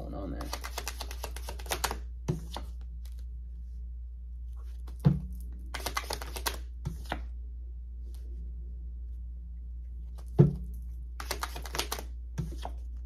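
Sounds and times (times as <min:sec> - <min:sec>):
cards flicking: 0:00.4 - 0:03.2, 0:05.7 - 0:07.2, 0:11.2 - 0:12.8
steady low hum: 0:06.7 - 0:11.2.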